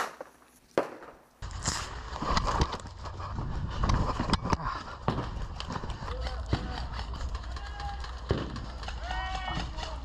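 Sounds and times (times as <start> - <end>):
wind rumbling on microphone: 1.4 - 8.8.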